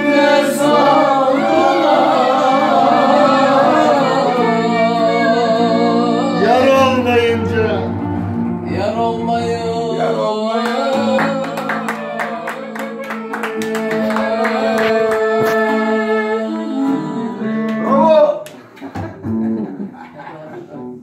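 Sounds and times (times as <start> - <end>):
person singing: 0.0 - 8.0, 8.6 - 18.0
clarinet: 0.0 - 8.1, 10.2 - 18.2
electric guitar: 0.0 - 18.1
hand claps: 10.6 - 15.7, 17.7 - 19.2.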